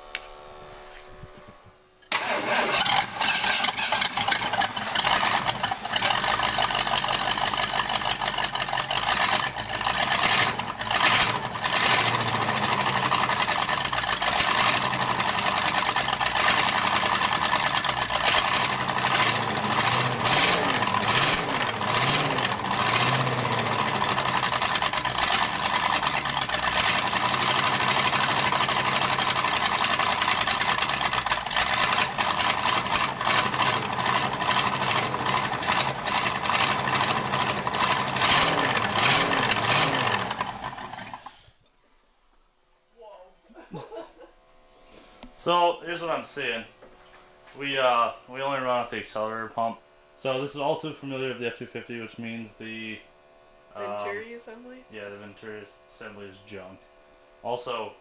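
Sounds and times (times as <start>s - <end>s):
loud engine revving: 2.1s - 41.2s.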